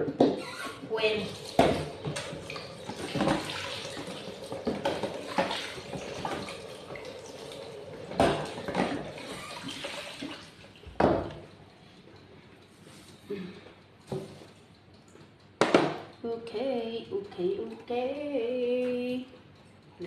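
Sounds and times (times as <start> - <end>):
tap water running into sink: 0.9 - 11.4.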